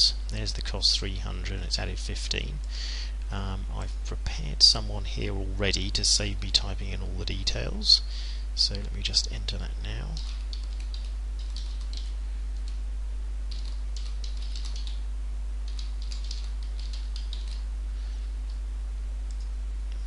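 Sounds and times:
steady low hum: 0.0 - 20.0
keyboard typing: 10.1 - 12.8, 13.5 - 15.0, 15.6 - 17.7.

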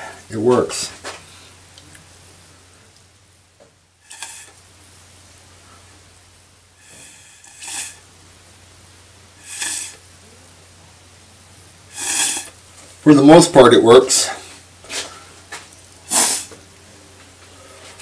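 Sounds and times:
puffs of blown air: 4.0 - 4.6, 6.8 - 8.1, 9.4 - 10.1, 11.9 - 12.6, 16.0 - 16.6.

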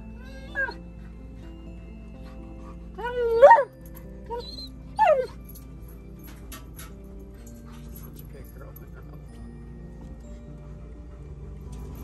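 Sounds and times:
background music: 0.0 - 12.0
dog whining calls: 0.1 - 1.4, 2.3 - 5.5.

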